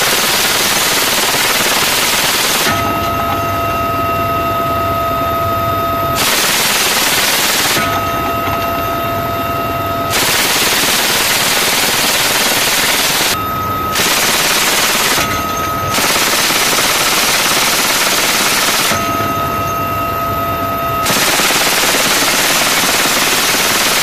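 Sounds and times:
machine gun automatic fire: 0.0 - 3.3, 6.2 - 8.1, 10.1 - 13.4, 14.0 - 19.3, 21.0 - 24.0
steady high whine: 0.0 - 24.0.

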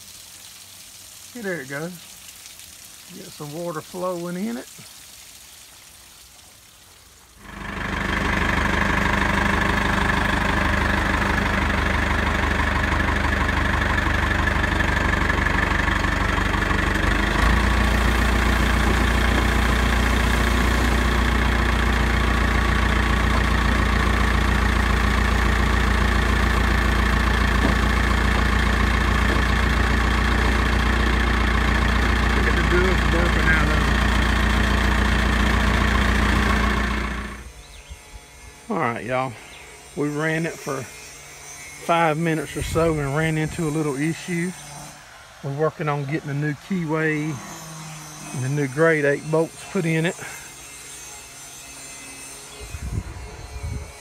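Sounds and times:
tractor engine running: 7.4 - 37.9, 40.0 - 50.9
deep low hum: 7.4 - 38.7.

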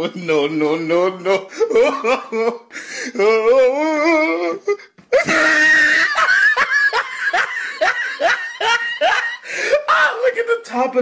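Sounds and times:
high-pitched laughing cries: 1.6 - 9.5.

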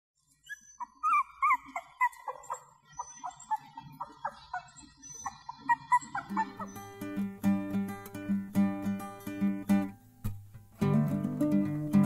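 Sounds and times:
puppies whimpering: 0.3 - 7.2.

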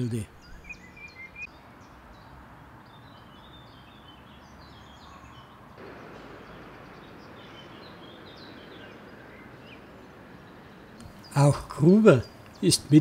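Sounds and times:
small birds chirping: 0.0 - 13.0
steady background hiss: 5.8 - 13.0.

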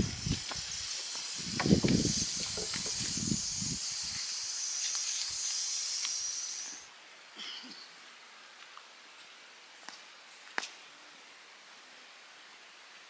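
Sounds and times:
cookware hissing over fire: 0.0 - 6.9.

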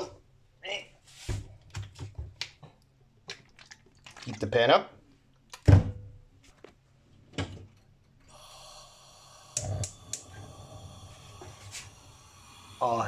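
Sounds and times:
gas burner hissing: 8.3 - 13.0
gas burner igniter clicks: 9.5 - 10.4.

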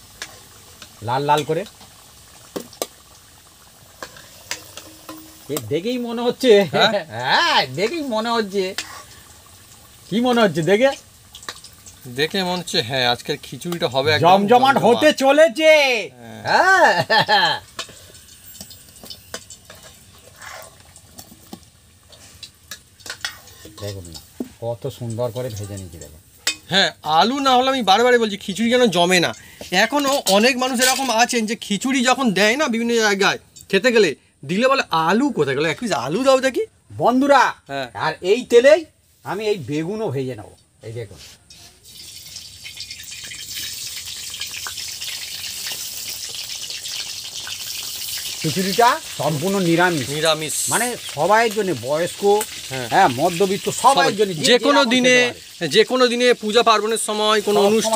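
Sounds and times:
oil crackling and popping: 0.0 - 33.9, 41.4 - 57.9
oil sizzling in a wok: 0.0 - 57.9.

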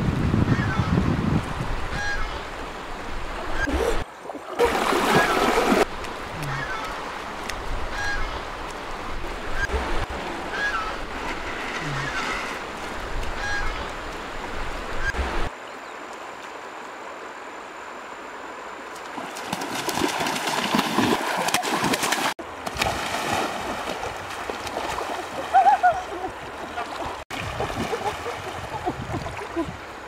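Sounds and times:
water splashing from wading: 3.4 - 14.2, 18.9 - 29.8
faint goose honks: 13.4 - 13.9.

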